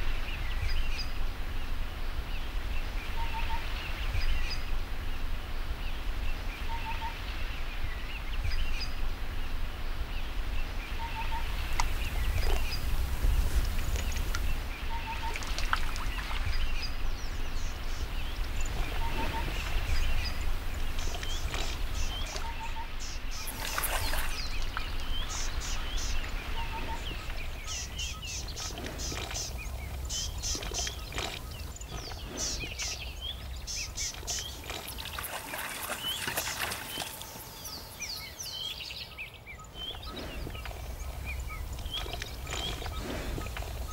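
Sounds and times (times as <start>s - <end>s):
birds chirping: 0.0s - 43.9s
low wind rumble: 0.0s - 43.9s.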